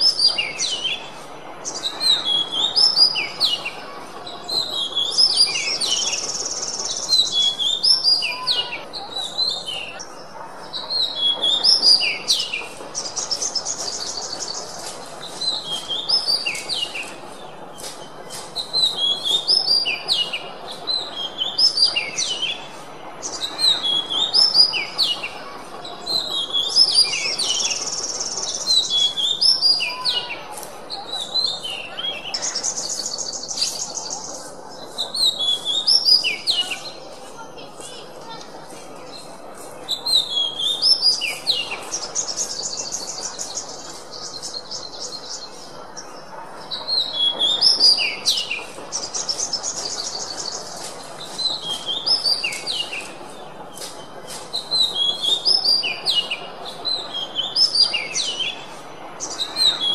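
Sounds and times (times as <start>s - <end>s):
background hiss: 0.0s - 59.9s
bird singing whistled notes: 35.1s - 37.0s, 53.8s - 58.6s.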